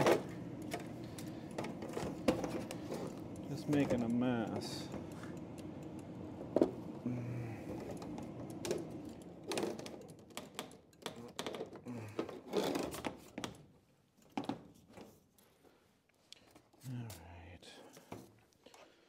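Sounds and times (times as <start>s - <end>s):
low steady hum: 0.0s - 10.3s.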